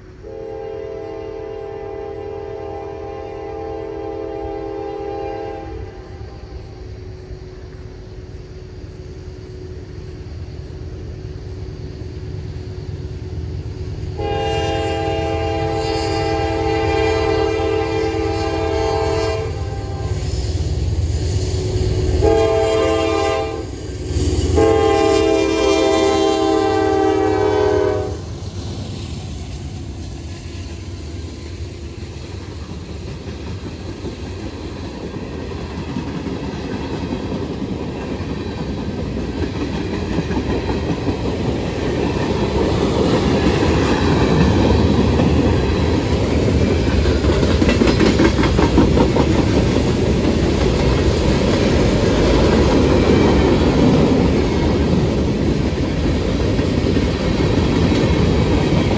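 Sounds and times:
locomotive rumble: 0:00.0 - 0:58.9
locomotive air horn blasts: 0:00.2 - 0:06.1, 0:14.2 - 0:20.3, 0:22.1 - 0:23.8, 0:24.4 - 0:28.2.

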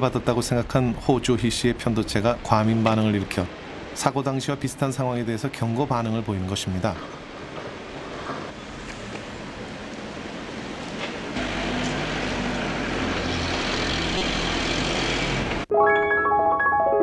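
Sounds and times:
vehicle engine and tyres: 0:07.0 - 0:15.7.

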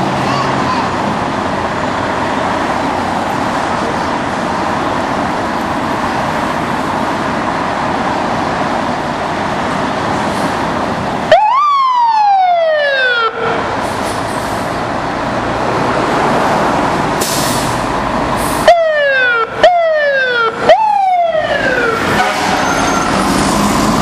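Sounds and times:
fire truck engines running: 0:00.0 - 0:24.0
siren sweeping: 0:11.3 - 0:13.6, 0:18.6 - 0:24.0.

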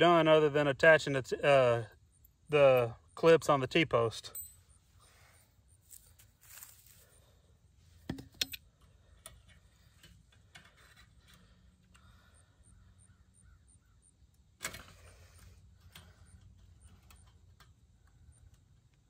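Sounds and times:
faint handling noises: 0:04.3 - 0:12.1.

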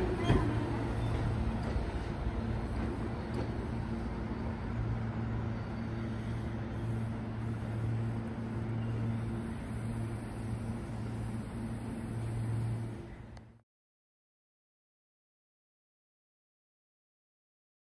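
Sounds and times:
electric train humming: 0:00.0 - 0:13.5.

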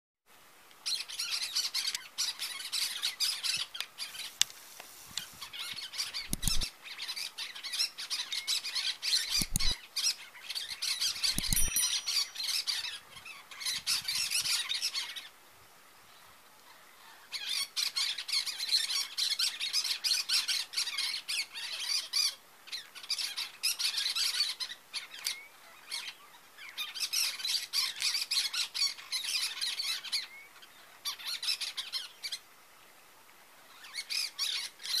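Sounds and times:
parakeets squawking: 0:06.0 - 0:06.7, 0:09.1 - 0:09.8.

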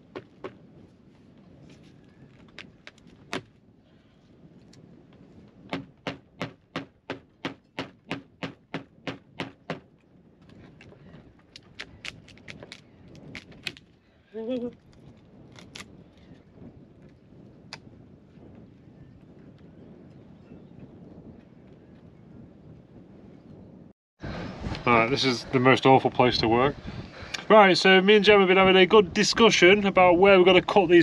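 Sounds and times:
tool knocking on wooden hull: 0:05.7 - 0:09.8.

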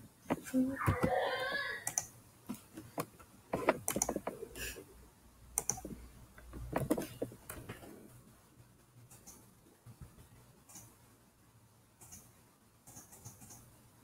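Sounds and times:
keyboard typing: 0:01.8 - 0:02.1, 0:03.0 - 0:04.5, 0:05.6 - 0:07.8, 0:12.9 - 0:13.7.

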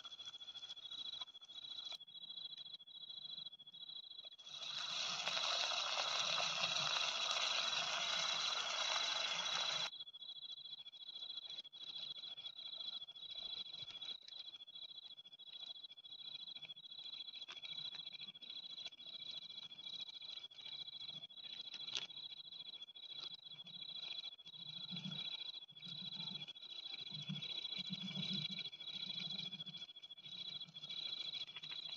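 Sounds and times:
crickets trilling: 0:00.0 - 0:31.9
food sizzling in frying pan: 0:04.4 - 0:09.9.

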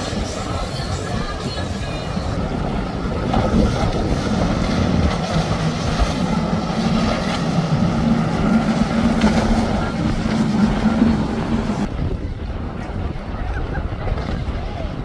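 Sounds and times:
boat engines droning: 0:00.0 - 0:15.0.

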